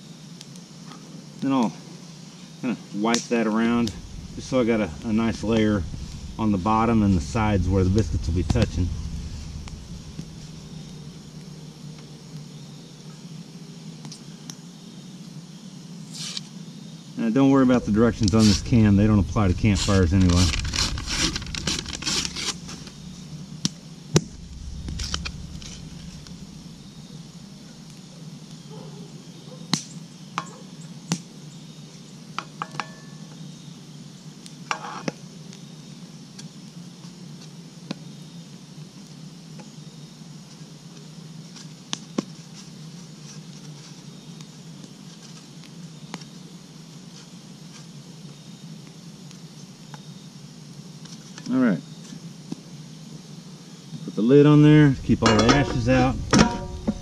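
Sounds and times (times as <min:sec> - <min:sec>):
campfire crackling: 0:03.1 - 0:13.1, 0:17.6 - 0:28.7, 0:54.6 - 0:57.0.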